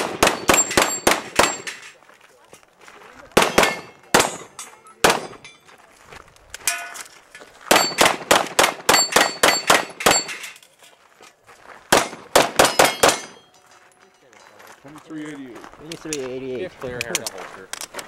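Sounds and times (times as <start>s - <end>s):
handgun shots: 0.0s - 1.8s, 3.4s - 5.5s, 7.7s - 10.4s, 11.9s - 13.5s
steel plates clanging: 6.6s - 8.1s, 8.9s - 11.0s, 12.6s - 14.6s.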